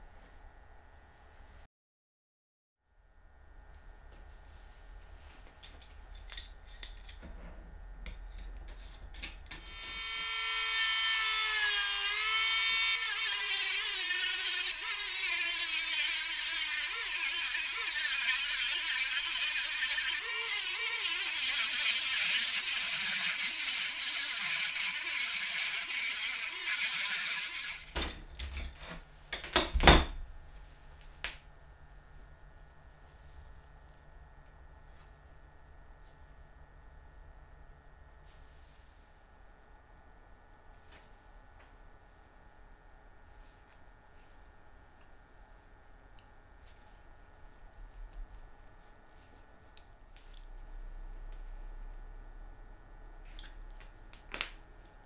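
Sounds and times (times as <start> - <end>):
rotary tool grinding metal: 8.3 - 28.0.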